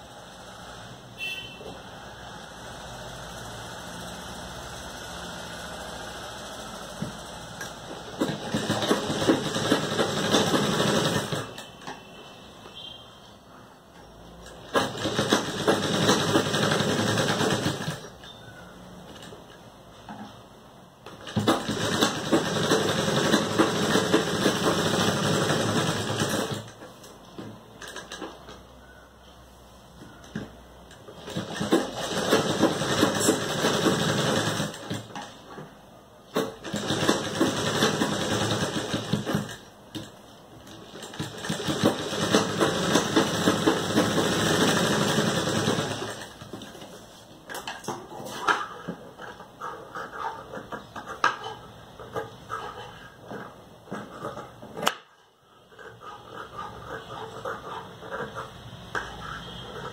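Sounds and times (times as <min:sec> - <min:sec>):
sewing machine running: 0:02.1 - 0:11.8, 0:14.5 - 0:18.2, 0:21.1 - 0:26.8, 0:31.1 - 0:35.4, 0:36.3 - 0:40.1, 0:40.7 - 0:46.8.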